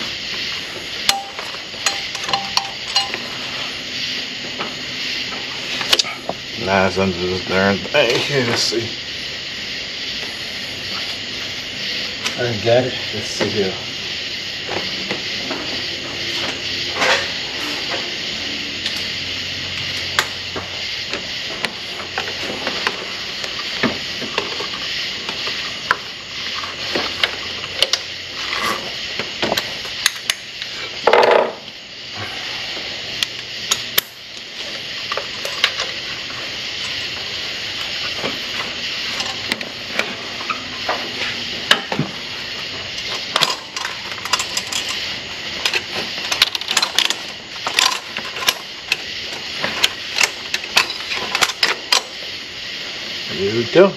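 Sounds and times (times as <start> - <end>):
steady hiss: 0.0 - 53.9
metal tools clinking and tapping: 1.1 - 3.4.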